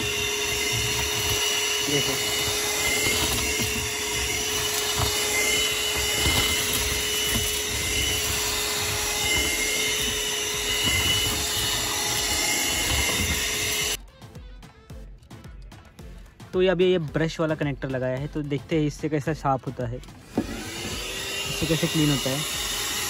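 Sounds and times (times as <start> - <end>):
handheld vacuum cleaner running: 0.0 - 14.0, 20.2 - 23.0.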